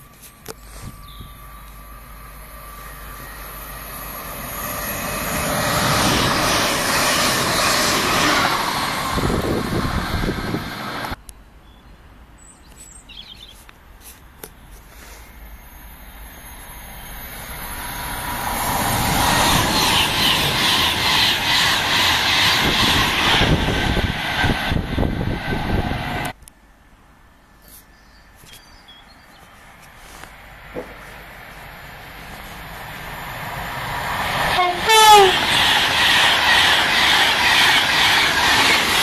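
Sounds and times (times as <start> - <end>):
electric train approaching: 0.0 - 11.2, 15.3 - 26.4, 30.3 - 39.0
high-speed train passing: 0.0 - 11.2, 15.3 - 26.4, 30.2 - 39.0.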